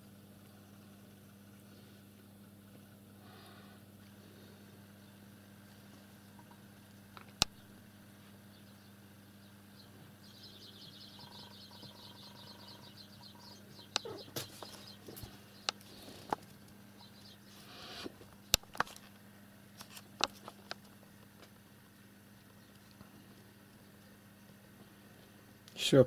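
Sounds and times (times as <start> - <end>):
faint steady hum: 0.0 - 26.0
bird chirping trill: 8.4 - 16.2, 16.8 - 18.0.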